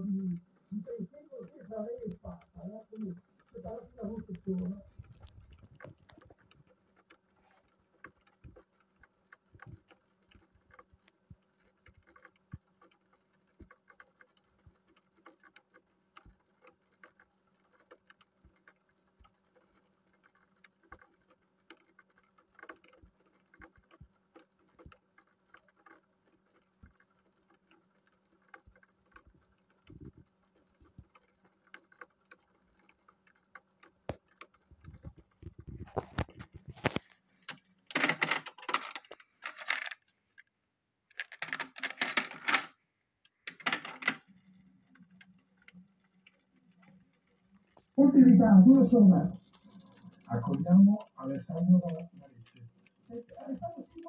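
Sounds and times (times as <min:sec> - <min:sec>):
low steady hum: 0:00.0 - 0:06.7, 0:42.8 - 0:54.0
faint clicks and ticks: 0:00.0 - 0:54.0.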